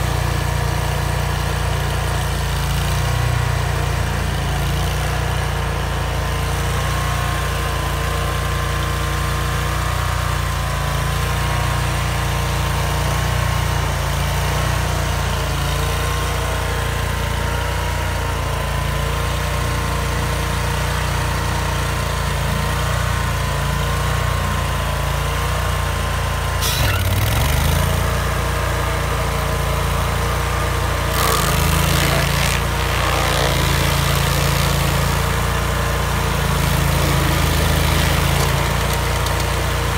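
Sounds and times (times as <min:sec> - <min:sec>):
stump grinder engine running: 0:00.0 - 0:39.9
rushing grinding noise: 0:30.9 - 0:39.9.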